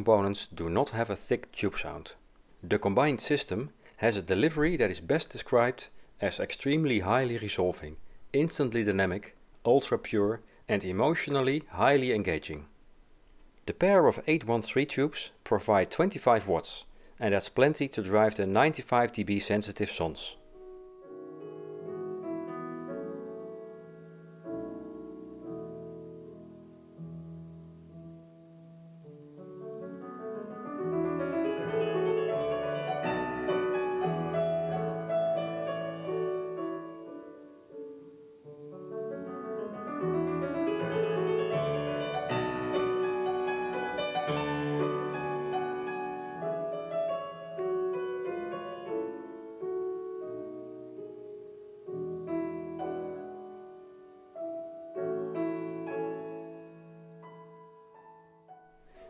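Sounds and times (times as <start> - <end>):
piano music over loudspeakers: 19.8 - 59.0.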